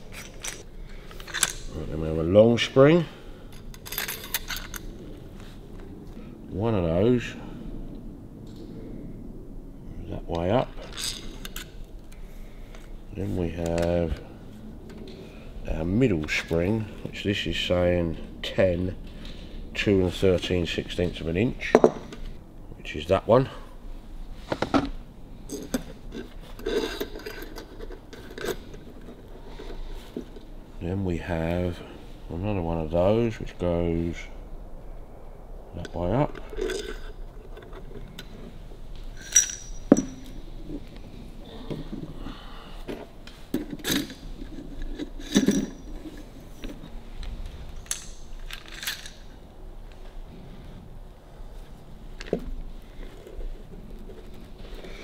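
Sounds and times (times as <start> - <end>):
metal springs clinking and rattling: 0.0 - 1.8, 10.8 - 11.8, 36.4 - 37.8, 39.1 - 40.5, 43.6 - 46.2, 47.8 - 49.3.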